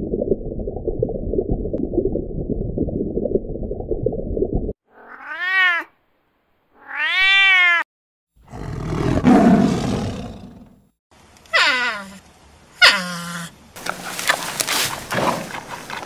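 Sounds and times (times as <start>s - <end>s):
murky rumble: 0.0s - 4.8s
cat meowing: 4.9s - 5.9s, 6.8s - 7.8s
cat hissing growl: 8.4s - 10.7s.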